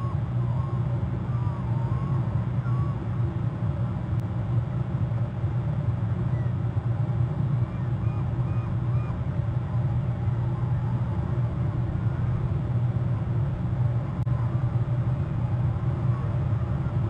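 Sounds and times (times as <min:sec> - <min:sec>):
faint bird calls: 0:00.0 - 0:03.1, 0:06.3 - 0:06.6, 0:07.6 - 0:11.3
steady low hum: 0:00.0 - 0:17.0.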